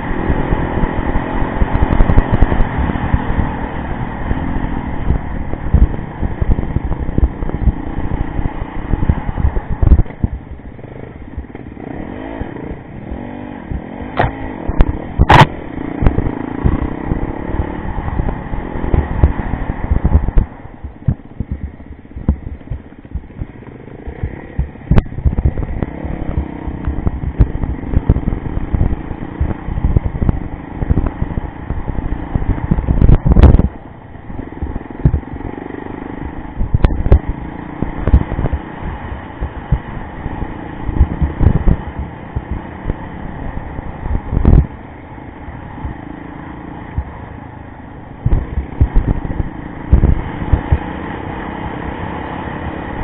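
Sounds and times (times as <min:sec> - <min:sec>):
motorcycle engine running: 0:00.0 - 0:53.0
heavy thumps and knocks: 0:08.9 - 0:10.5, 0:18.1 - 0:33.8, 0:34.6 - 0:35.5, 0:36.6 - 0:38.7, 0:44.2 - 0:44.7, 0:48.2 - 0:50.8.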